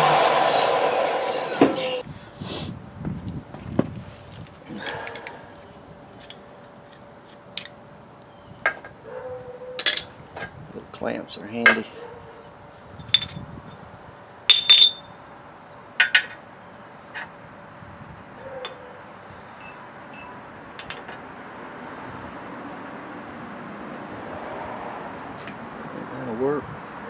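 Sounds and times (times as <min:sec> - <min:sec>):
steel parts clinking: 0:09.8 - 0:10.1, 0:13.0 - 0:13.4, 0:14.5 - 0:15.1.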